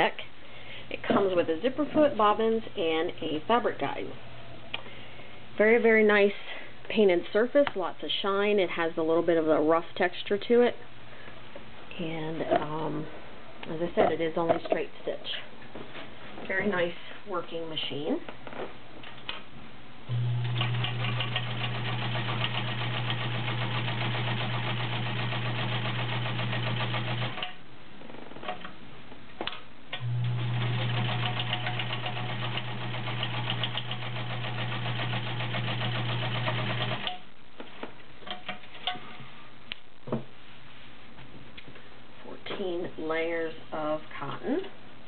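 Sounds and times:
sewing machine stitching: 20.4s - 27.5s, 30.0s - 37.2s.

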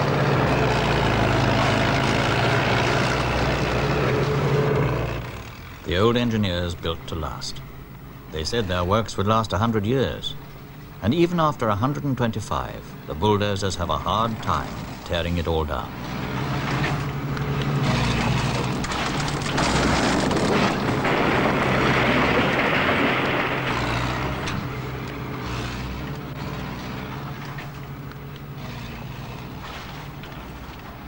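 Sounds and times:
bulldozer diesel engine: 0.0s - 31.0s
rubble clattering: 14.2s - 31.0s.

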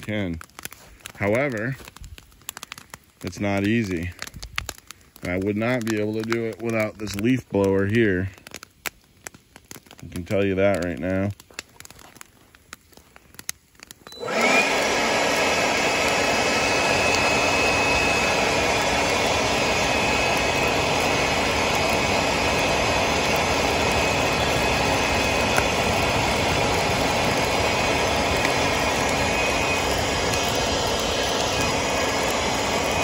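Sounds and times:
leaf blower running: 14.1s - 33.0s.

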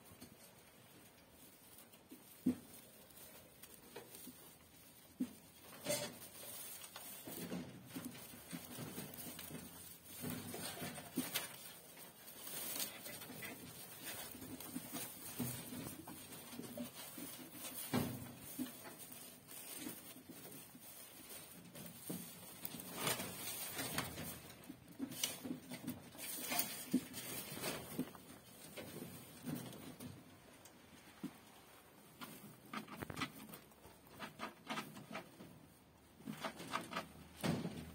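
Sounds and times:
straw rustling and crackling: 0.0s - 37.9s
scratches and taps: 32.1s - 35.5s.

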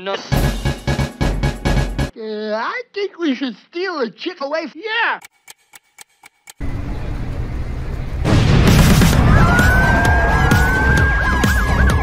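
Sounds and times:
loud deep rumble: 6.6s - 11.0s
siren wailing: 9.2s - 12.0s.

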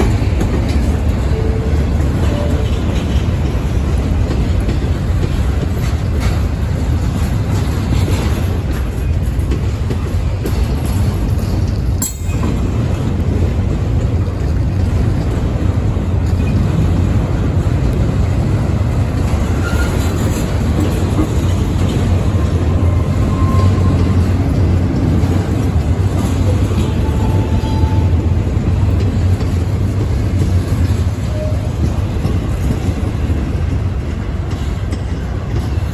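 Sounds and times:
train wheels rumbling on rail: 0.0s - 35.9s.

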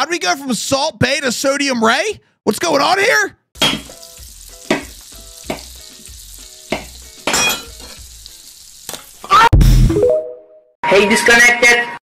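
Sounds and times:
food sizzling in a pan: 3.6s - 9.5s.

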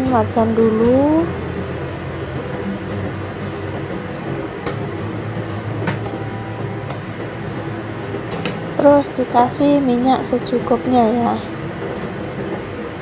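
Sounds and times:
kitchen machinery humming: 0.0s - 13.0s.

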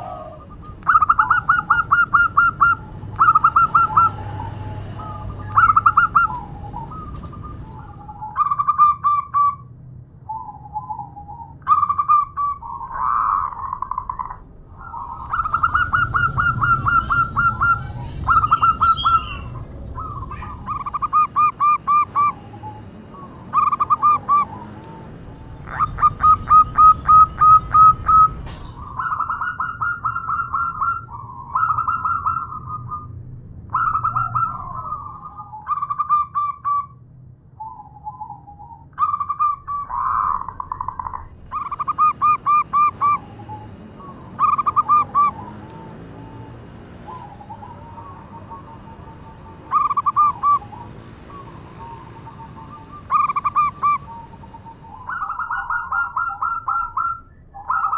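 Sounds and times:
dove cooing: 0.0s - 9.6s, 10.3s - 36.9s, 37.6s - 57.9s.

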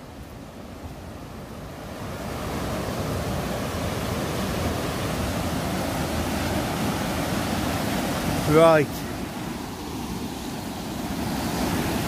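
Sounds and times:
brook water rushing: 0.0s - 12.0s.

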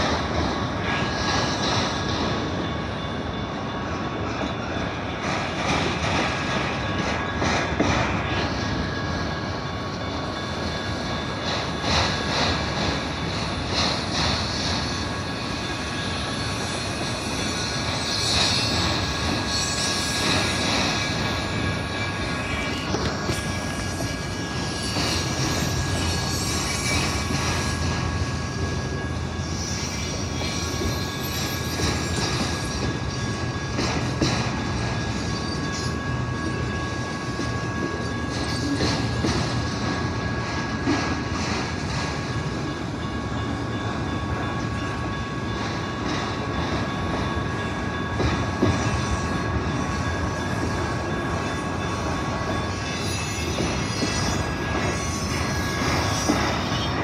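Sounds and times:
train wheels rumbling on rail: 0.0s - 57.0s
wheel squeal: 8.4s - 40.7s, 52.2s - 57.0s.

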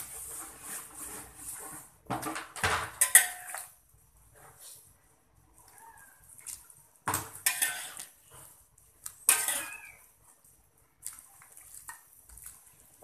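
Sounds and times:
spatula scraping wok: 0.0s - 2.1s, 2.9s - 4.9s, 7.3s - 8.6s, 9.2s - 10.0s.

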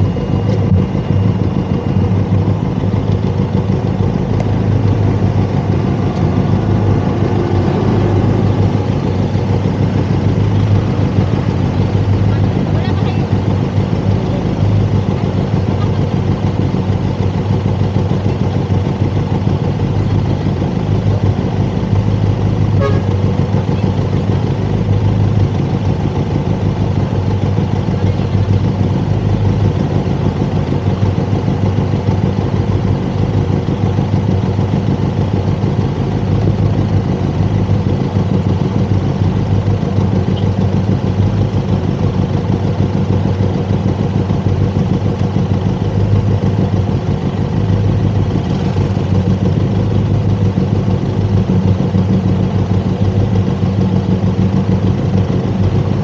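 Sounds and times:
motorcycle engine idling: 0.0s - 56.0s
short horn beep: 22.8s - 23.3s.

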